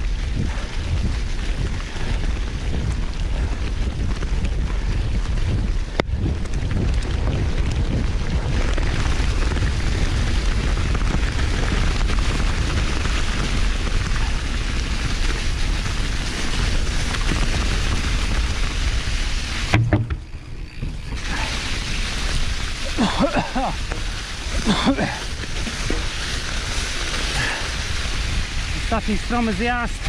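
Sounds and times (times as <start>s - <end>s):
wind on microphone: 0.0s - 22.9s
bike tyres rolling over leaves: 0.0s - 30.0s
short knock: 19.7s - 20.3s.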